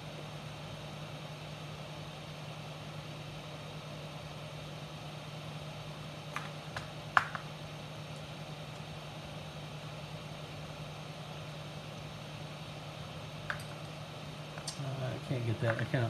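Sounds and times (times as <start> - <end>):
low hum with hiss: 0.0 - 16.0
small parts clicking on workbench: 13.5 - 13.9.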